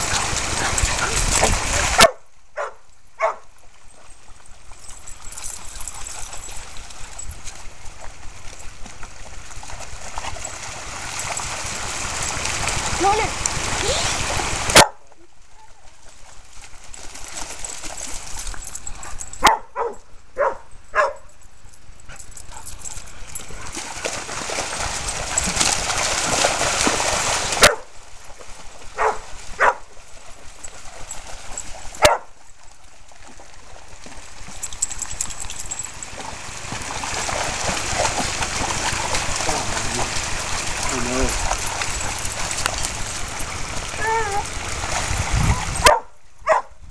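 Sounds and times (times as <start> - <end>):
dog barking: 2.0 - 3.4, 14.7 - 15.0, 19.4 - 21.3, 27.6 - 27.9, 29.0 - 29.8, 32.0 - 32.3, 45.8 - 46.8.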